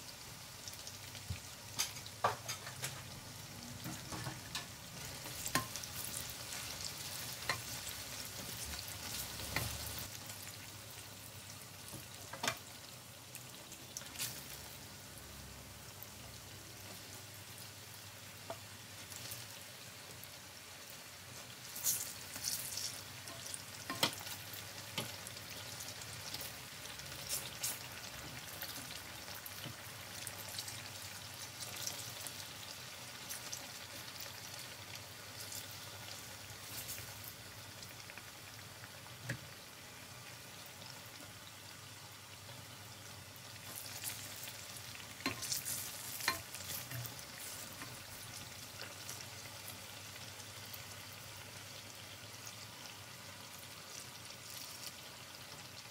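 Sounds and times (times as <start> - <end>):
food deep-frying in oil: 0.0 - 55.9.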